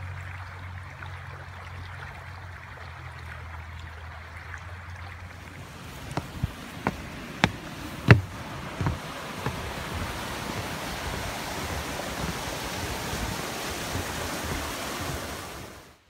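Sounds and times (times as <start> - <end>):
footsteps on wooden planks: 5.4 - 12.8
steady rushing noise: 5.4 - 15.8.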